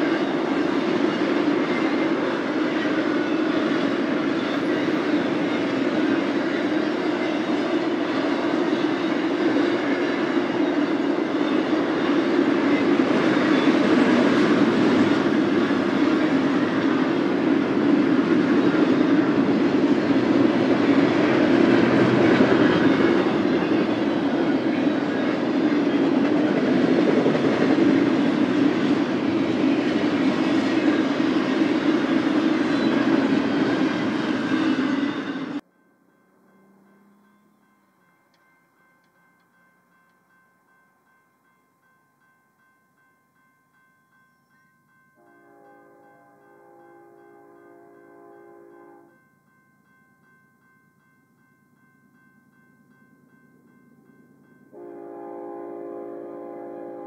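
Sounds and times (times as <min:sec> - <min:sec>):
freight train wheels rumbling: 0:00.0 - 0:35.7.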